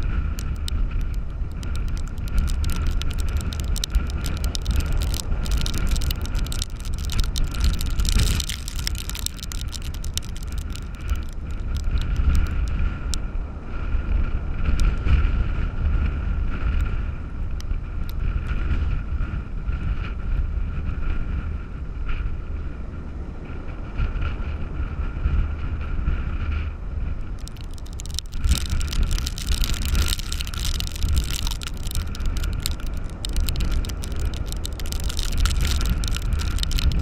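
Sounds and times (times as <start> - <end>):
blown sand ticking on device: 0.0 - 13.2, 27.2 - 37.0
storm surf rushing: 0.0 - 13.2
wind buffeting the microphone: 0.0 - 37.0.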